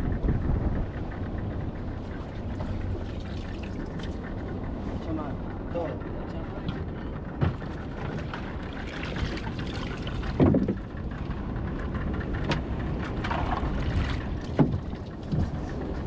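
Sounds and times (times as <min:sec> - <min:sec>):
wind: 0:00.0 - 0:16.0
sea noise: 0:06.9 - 0:16.0
water splashes: 0:07.5 - 0:10.9, 0:13.2 - 0:16.0.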